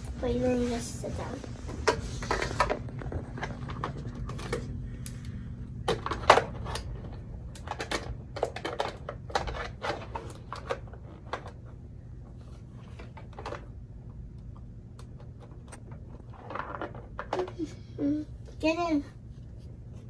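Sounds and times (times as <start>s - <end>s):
plastic toys clicking and knocking: 5.8s - 11.7s, 12.9s - 13.8s, 15.0s - 17.9s.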